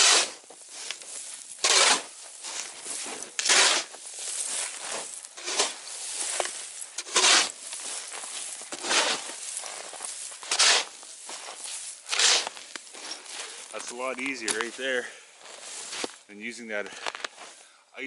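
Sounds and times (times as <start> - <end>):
ice chips scraping: 0.0 - 16.3
ice chisel chopping ice: 1.6 - 2.1, 3.4 - 3.9, 7.0 - 7.6, 10.5 - 10.9, 12.1 - 12.6.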